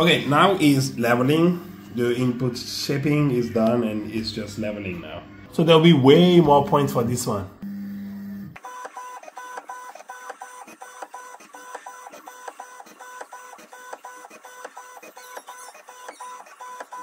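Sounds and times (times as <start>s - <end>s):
stepper motors whining: 7.6s - 17.0s.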